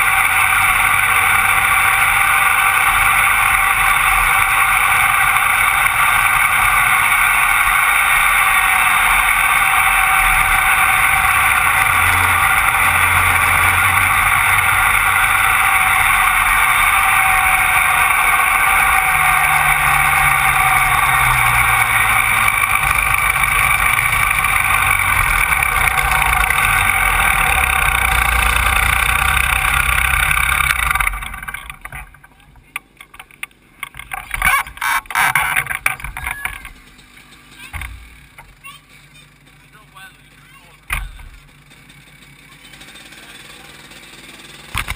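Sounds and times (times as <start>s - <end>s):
kart engine running: 0.0s - 44.9s.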